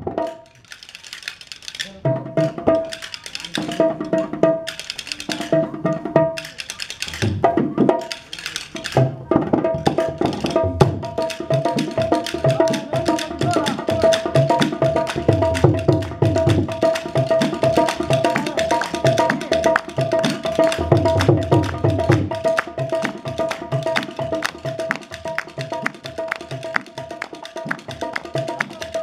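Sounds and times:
wooden castanets clattering: 0.2s - 3.9s, 4.6s - 5.6s, 6.4s - 7.4s, 8.0s - 9.0s.

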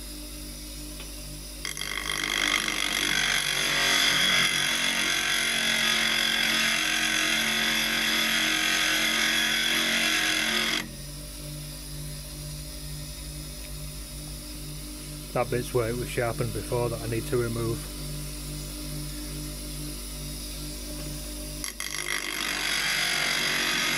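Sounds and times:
grinder motor humming: 0.0s - 23.9s
chisel grinding hiss: 1.6s - 10.9s, 21.6s - 23.9s.

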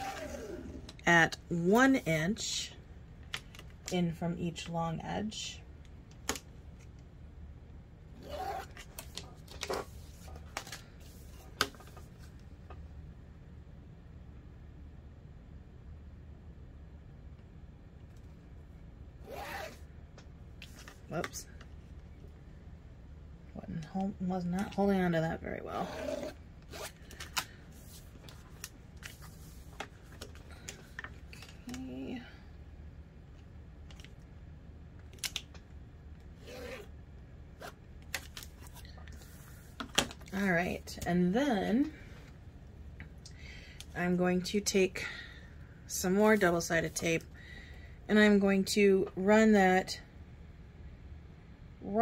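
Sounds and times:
vinyl strip rustling: 25.9s - 31.8s.

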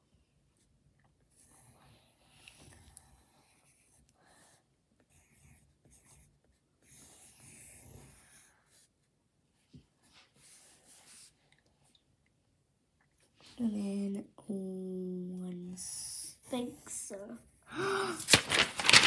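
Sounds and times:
pencil scratching on paper: 1.3s - 11.4s.

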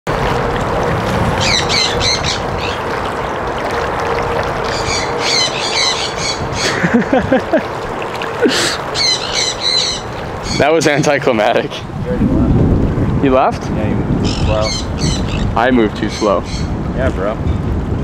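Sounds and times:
wind buffeting microphone: 0.1s - 18.0s
birds chirping: 1.4s - 2.9s, 4.6s - 7.0s, 8.2s - 11.5s, 14.2s - 16.8s.

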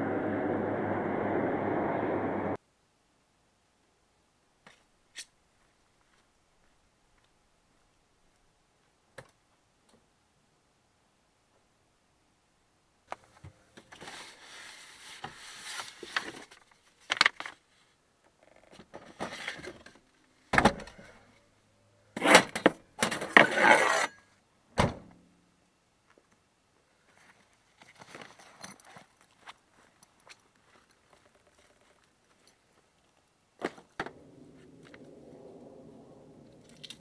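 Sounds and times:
rustling and scraping of objects: 13.2s - 18.0s, 18.6s - 21.4s, 27.0s - 35.2s.

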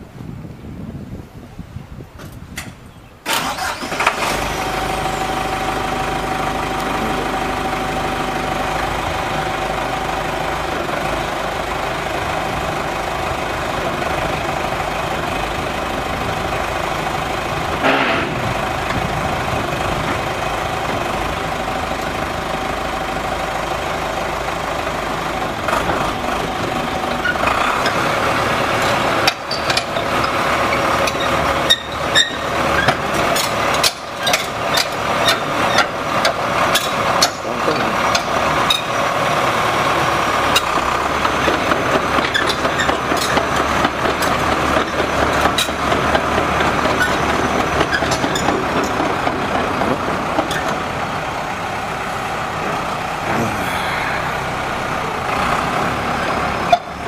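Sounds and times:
tracked loader engine running: 0.0s - 57.0s
sharp metal clanks and knocks: 31.0s - 38.9s.

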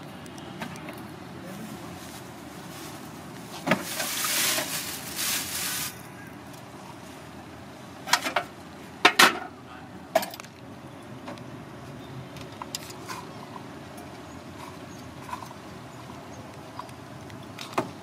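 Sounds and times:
street background noise: 0.0s - 18.0s
plastic bag rustling: 1.5s - 6.1s.

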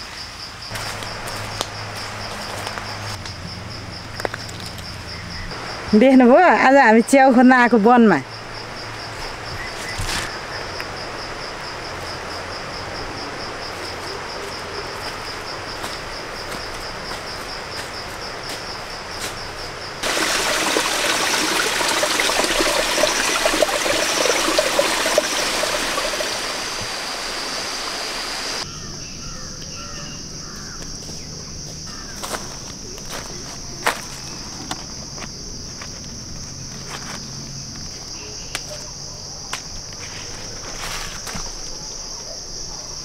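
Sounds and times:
stream rushing: 5.5s - 6.6s, 19.7s - 28.6s
steady hiss: 20.0s - 28.6s
insect trilling: 20.0s - 35.0s.

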